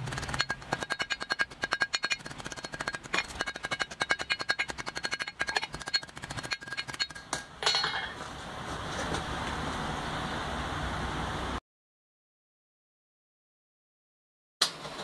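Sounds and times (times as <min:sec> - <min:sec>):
hammer striking hot steel on anvil: 0:00.2 - 0:08.2.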